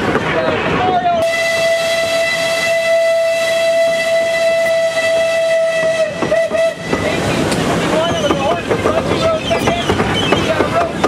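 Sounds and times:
moving train noise: 0.0 - 11.0
steam locomotive whistle: 1.2 - 7.3.

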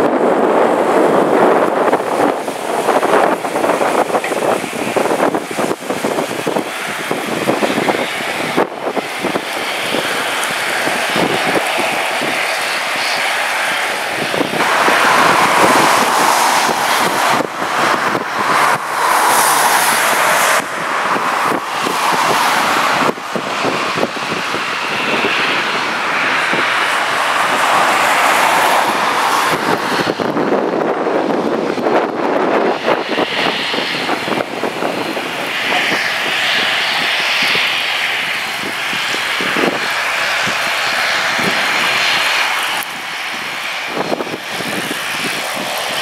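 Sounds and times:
constant noisy rush: 0.0 - 46.0
propeller aircraft engines: 0.0 - 46.0.

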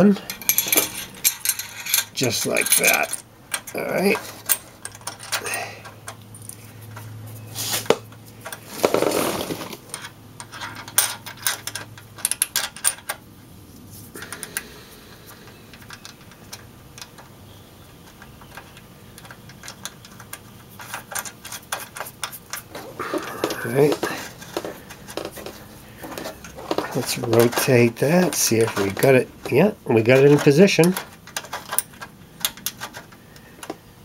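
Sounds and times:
metallic clinks of a clamp: 0.3 - 6.6.

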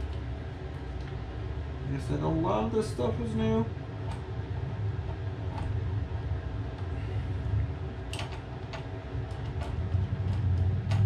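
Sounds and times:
low hum: 0.0 - 11.0
metal parts clicking and tapping: 8.1 - 11.0.

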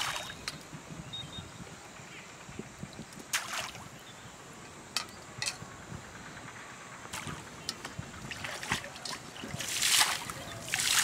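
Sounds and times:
water splashing: 0.0 - 0.4, 3.3 - 3.9, 8.2 - 11.0.

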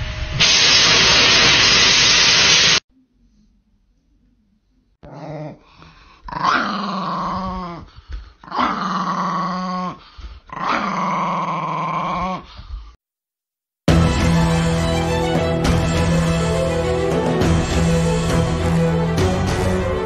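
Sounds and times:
small dog growling: 5.0 - 12.5.

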